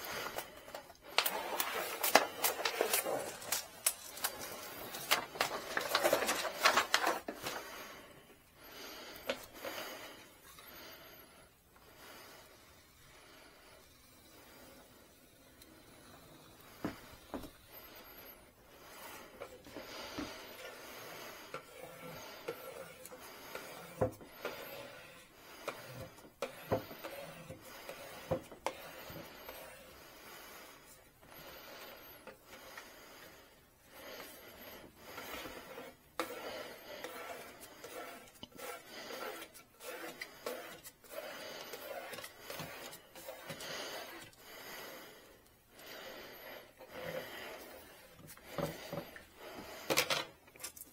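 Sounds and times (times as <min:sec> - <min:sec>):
vinyl sheet rubbing and scraping: 0:35.0 - 0:44.2.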